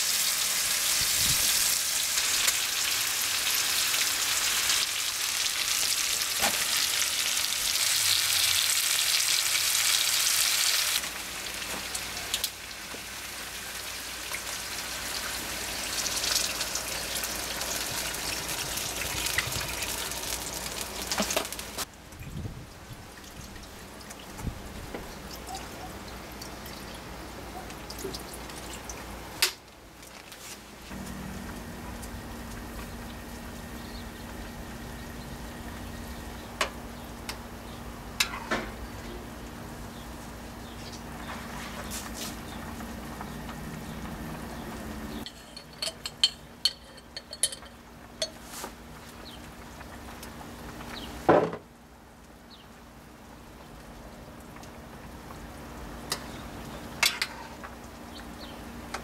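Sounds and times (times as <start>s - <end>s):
utensils clinking against dishes: 45.2s - 48.5s, 57.0s - 57.6s.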